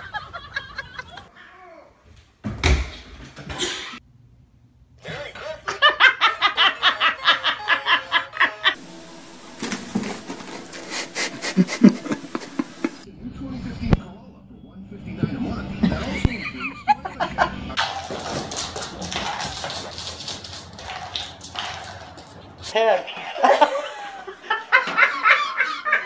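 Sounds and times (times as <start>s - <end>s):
person laughing hard: 0.0s - 1.3s, 5.4s - 8.8s, 9.9s - 13.0s, 23.1s - 26.0s.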